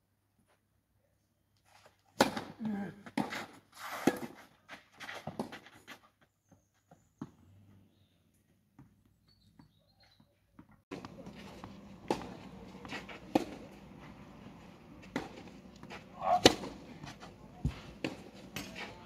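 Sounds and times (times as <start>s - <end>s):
tennis ball hit by racquets: 2.2s - 4.4s, 10.9s - 19.0s.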